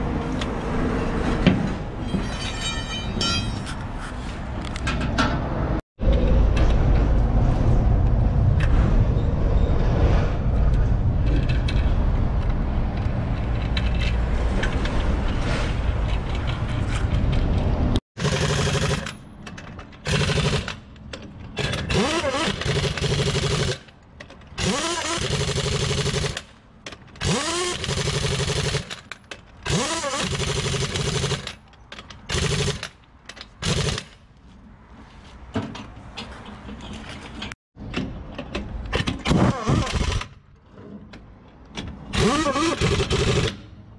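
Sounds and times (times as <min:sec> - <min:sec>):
pneumatic impact wrench bursts: 0:18.2 - 0:19.1, 0:20.0 - 0:20.8, 0:21.6 - 0:23.9, 0:24.6 - 0:26.5, 0:27.2 - 0:29.0, 0:29.6 - 0:31.6, 0:32.3 - 0:33.0, 0:33.6 - 0:34.1, 0:39.2 - 0:40.3, 0:42.1 - 0:43.7.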